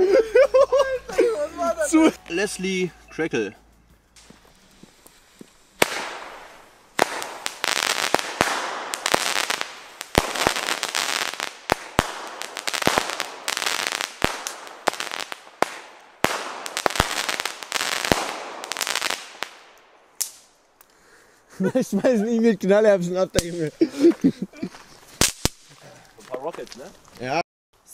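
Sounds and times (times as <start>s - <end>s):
fireworks popping and crackling: 4.2s - 20.6s, 23.3s - 23.7s, 25.0s - 27.3s.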